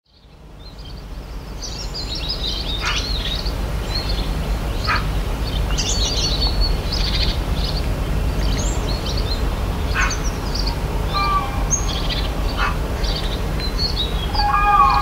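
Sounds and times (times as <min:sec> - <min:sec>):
birds chirping and trilling: 0:00.6 - 0:15.0
low rumble: 0:08.3 - 0:15.0.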